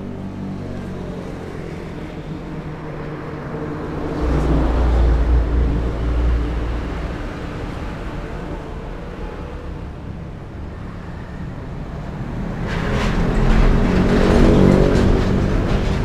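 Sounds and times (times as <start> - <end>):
street noise: 0.0 - 16.0
vehicle passing by: 0.8 - 10.2.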